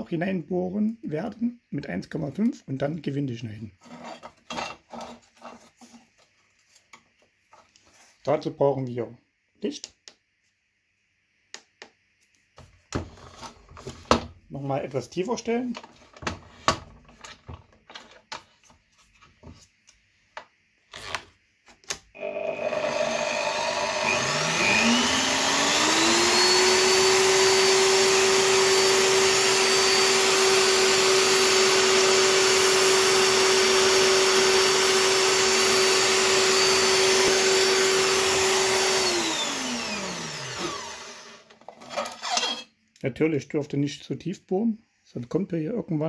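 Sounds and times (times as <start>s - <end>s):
drill press motor whine: 22.2s - 41.5s.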